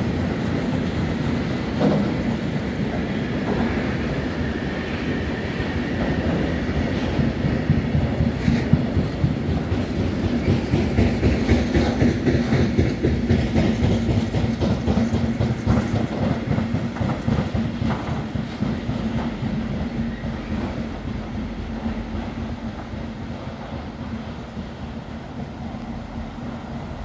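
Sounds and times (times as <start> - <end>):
freight train rumbling: 0.0 - 27.0
wheels clicking over rail joints: 5.6 - 23.2.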